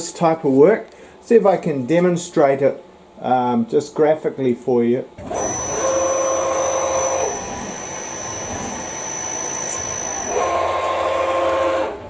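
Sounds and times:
lathe axis drives whining: 5.2 - 12.0.

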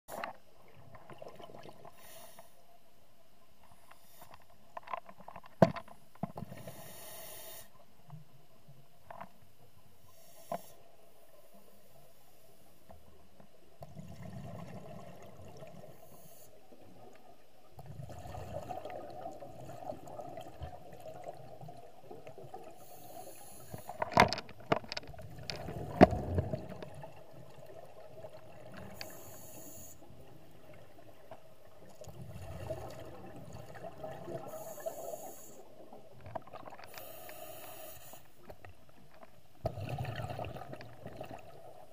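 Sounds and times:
regulator breathing hiss: 1.9 - 2.6, 3.8 - 4.4, 6.6 - 7.8, 10.0 - 10.9, 22.8 - 24.0, 28.9 - 30.0, 34.5 - 35.7, 36.9 - 38.4
exhaled bubbles rumbling: 13.8 - 15.9, 17.8 - 22.8, 25.1 - 29.0, 30.2 - 34.6, 39.6 - 41.9.

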